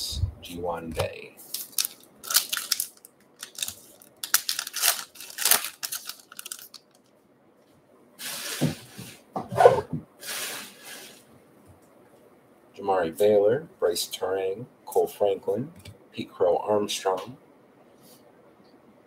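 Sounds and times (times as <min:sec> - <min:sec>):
wrapper tearing and crinkling: 0:01.5 - 0:07.0.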